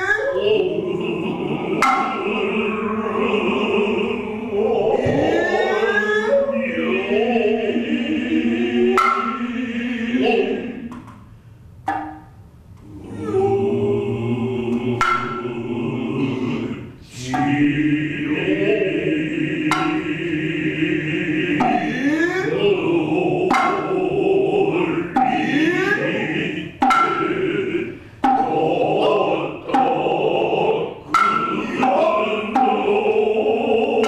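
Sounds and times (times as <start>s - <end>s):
bamboo flute sustained tone: 0.0s - 9.5s
chorus chanting in unison: 0.0s - 11.3s, 11.9s - 34.0s
hand drum strikes: 1.8s - 2.2s, 9.0s - 9.4s, 15.0s - 15.4s, 19.7s - 20.1s, 23.5s - 23.9s, 26.8s - 27.3s, 28.2s - 28.6s, 31.1s - 32.9s.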